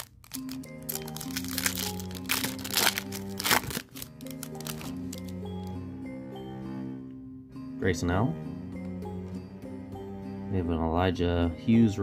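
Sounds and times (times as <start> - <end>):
foil wrapper crinkling: 0.0 - 5.4
background music: 0.0 - 12.0.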